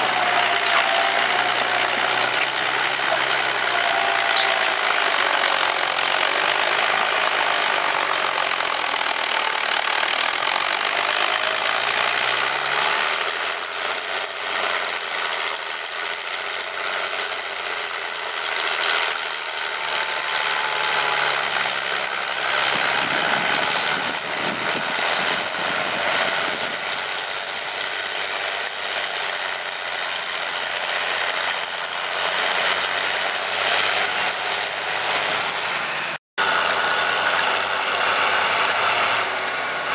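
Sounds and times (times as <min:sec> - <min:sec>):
high whine: 0:00.0 - 0:05.2
tractor diesel engine running: 0:00.0 - 0:39.9.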